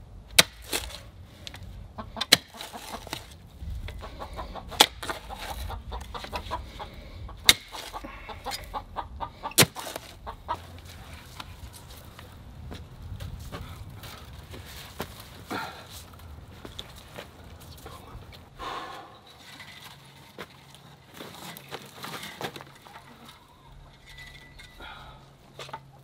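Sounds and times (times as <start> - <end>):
hens clucking: 1.7 - 12.4, 17.4 - 26.0
post-hole digger metal clanks: 19.2 - 25.9.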